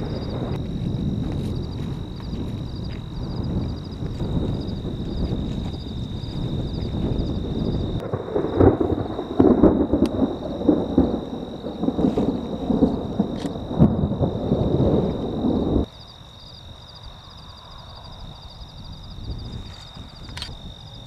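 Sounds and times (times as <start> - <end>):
sharp thunder cracks: 0.0 - 15.9
thunder rumbling: 0.0 - 16.0.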